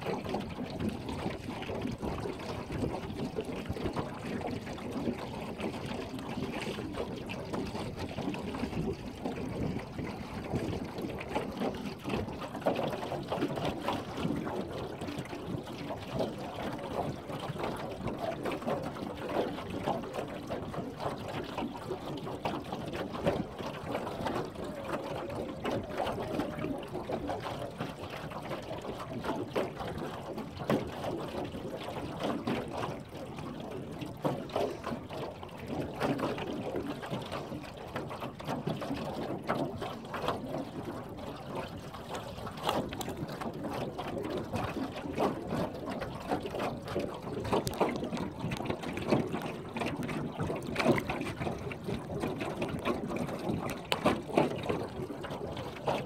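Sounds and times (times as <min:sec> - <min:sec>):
water slapping against boat hull: 0:00.0 - 0:56.0.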